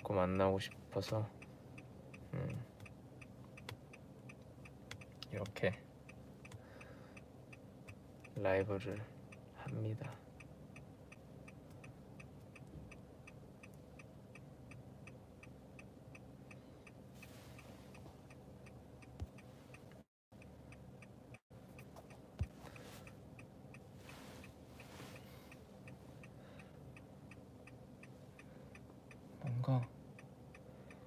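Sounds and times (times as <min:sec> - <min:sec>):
car turn signal ticking: 0:00.0 - 0:31.0
low cabin hum: 0:00.0 - 0:31.0.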